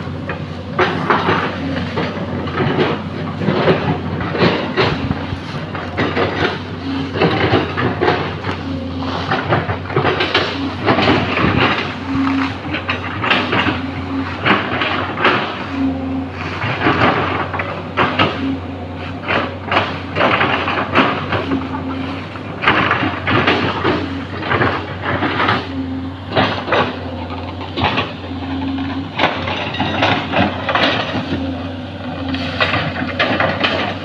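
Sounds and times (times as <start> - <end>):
excavator diesel engine running: 0.0 - 34.0.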